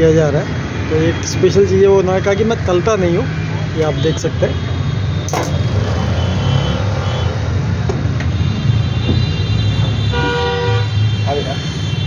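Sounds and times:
road traffic rumble: 0.0s - 12.0s
vehicle horn: 5.2s - 12.0s.

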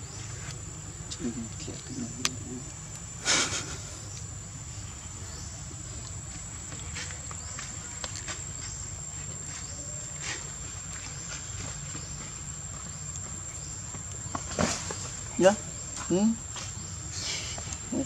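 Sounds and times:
insect droning: 0.0s - 18.0s.

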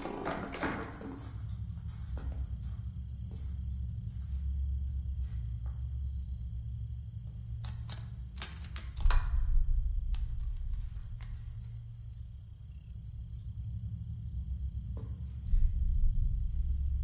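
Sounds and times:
low drone: 9.2s - 17.0s.

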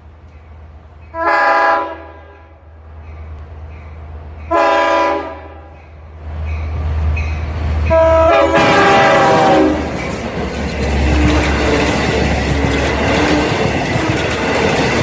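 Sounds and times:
train engine and wheel rumble: 0.0s - 15.0s
train horn blasts: 1.2s - 2.6s, 4.5s - 5.7s, 7.8s - 9.9s.

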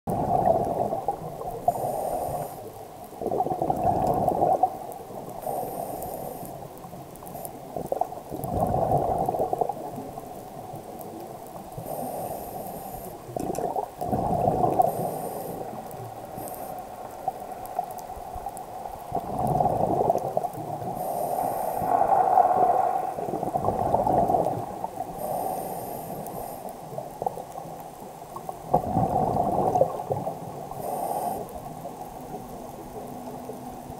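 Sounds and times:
bubbling exhale underwater: 0.1s - 4.9s, 7.7s - 10.1s, 13.3s - 15.8s, 19.1s - 21.1s, 21.8s - 25.4s, 28.4s - 31.4s
regulator hissing inhale: 1.6s - 2.7s, 5.4s - 7.7s, 11.8s - 13.3s, 14.7s - 17.1s, 21.0s - 22.3s, 25.0s - 26.9s, 30.7s - 31.7s.

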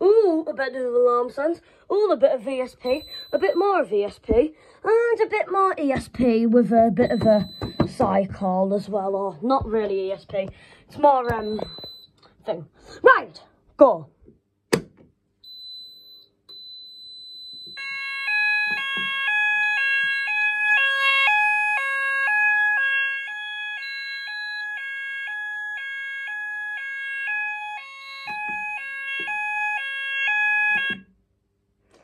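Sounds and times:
fire alarm high beep: 2.7s - 3.9s, 6.8s - 8.5s, 11.0s - 12.2s, 15.4s - 31.1s
fire alarm two-tone warble: 2.7s - 3.9s, 6.6s - 9.0s, 11.0s - 12.1s, 15.4s - 31.2s.

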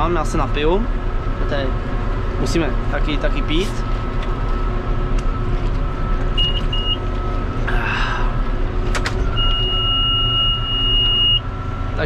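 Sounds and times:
tractor engine running: 0.0s - 12.0s
monitor beeps: 4.5s - 7.6s, 9.3s - 11.5s.

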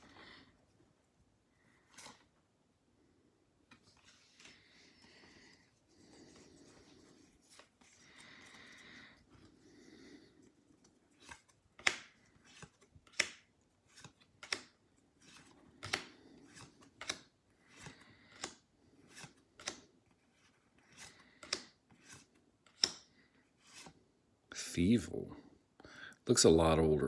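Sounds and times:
cards rustling: 1.6s - 2.4s, 3.6s - 24.1s
card sliding and snapping: 1.8s - 2.3s, 10.8s - 24.0s.

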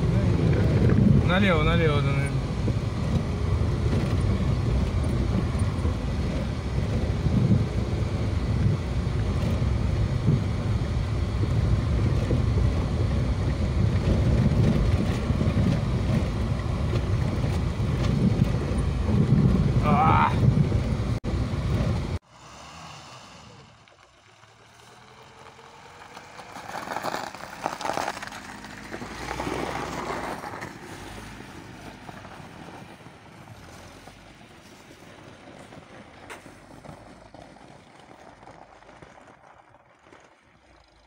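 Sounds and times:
loud noise inside car: 0.0s - 24.0s.

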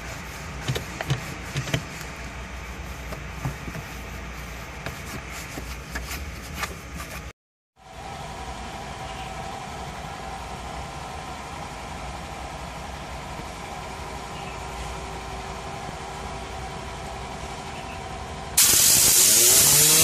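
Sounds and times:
cloth wiping plastic trim: 0.0s - 7.3s
small knocks and scrapes: 3.0s - 7.3s
steady machine hum: 7.8s - 20.0s.

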